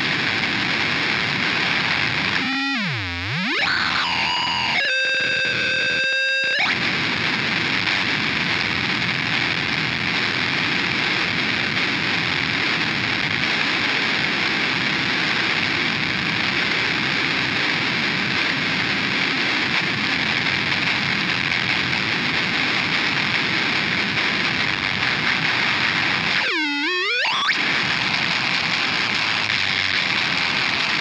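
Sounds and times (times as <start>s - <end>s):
harsh noise: 1.6s - 7.2s, 25.0s - 31.0s
buzzy pitched tone: 2.3s - 6.8s, 26.4s - 27.6s.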